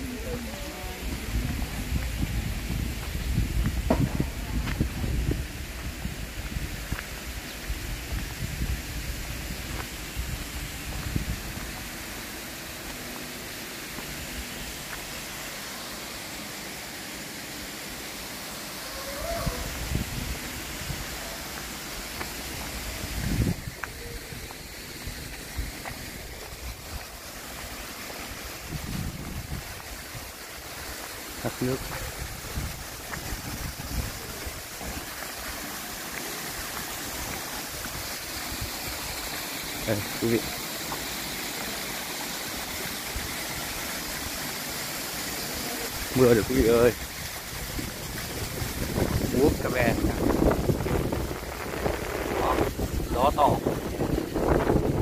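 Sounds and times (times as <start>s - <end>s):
falling water hiss: 0.0s - 55.0s
wind buffeting microphone: 0.1s - 7.0s, 22.9s - 24.5s, 28.6s - 30.3s, 47.3s - 55.0s.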